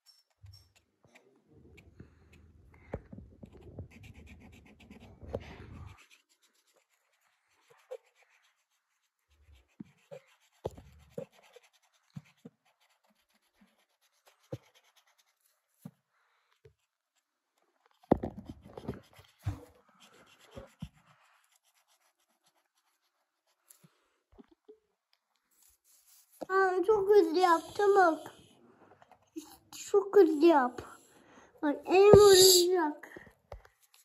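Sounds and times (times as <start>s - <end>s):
marker scratching on paper: 3.4s - 15.5s, 18.6s - 23.6s, 25.6s - 28.4s, 31.7s - 32.9s.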